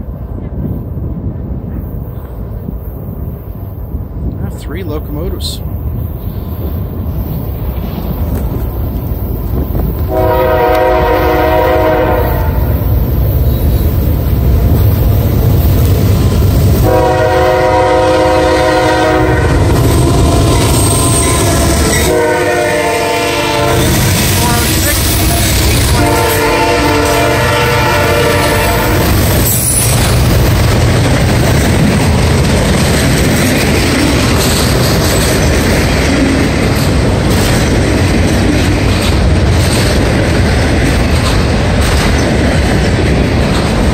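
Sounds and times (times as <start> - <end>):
train rumbling over rails: 0.0 - 43.9
locomotive air horn: 10.1 - 12.7, 16.8 - 29.1.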